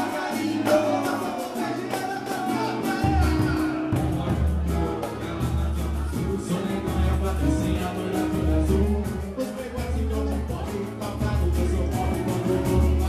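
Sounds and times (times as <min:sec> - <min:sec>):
live band playing: 0:00.0 - 0:13.0
percussion: 0:00.0 - 0:13.0
person singing: 0:00.0 - 0:13.0
deep bass line: 0:03.0 - 0:13.0.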